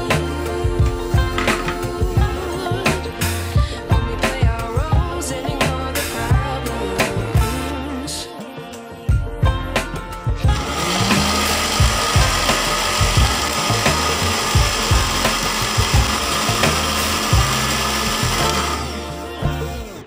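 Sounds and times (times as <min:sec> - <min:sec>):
blender running: 0:10.5 - 0:20.0.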